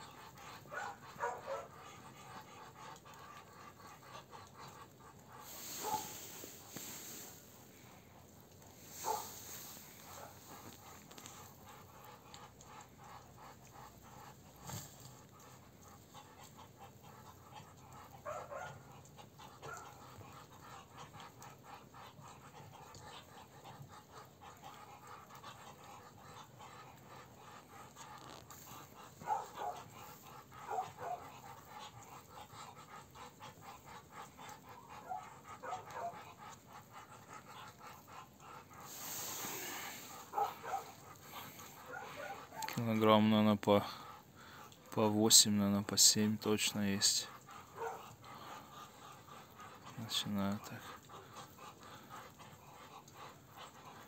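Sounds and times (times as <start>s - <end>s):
ducks hissing: 0.1s - 18.2s, 18.8s - 44.9s, 47.3s - 54.0s.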